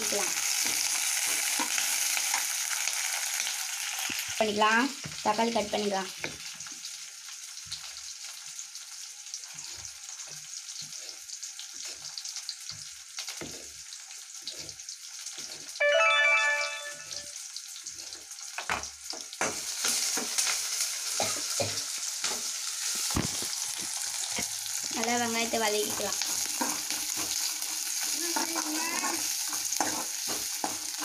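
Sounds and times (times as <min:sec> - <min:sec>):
food sizzling in hot oil: 0:00.0 - 0:31.0
loud tone with overtones: 0:15.8 - 0:17.3
spoon knocking and scraping: 0:29.1 - 0:31.0.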